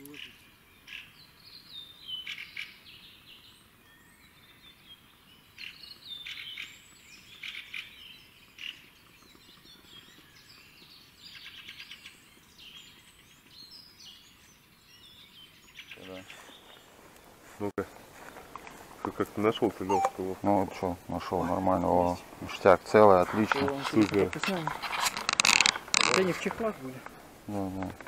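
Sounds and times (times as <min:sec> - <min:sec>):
songbirds singing: 0:00.0 - 0:28.0
rapid bird trilling: 0:19.7 - 0:20.4.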